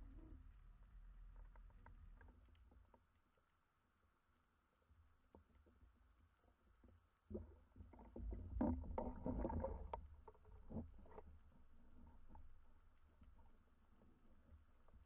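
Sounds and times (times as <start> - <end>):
water splashing heard underwater: 7.3 - 12.6.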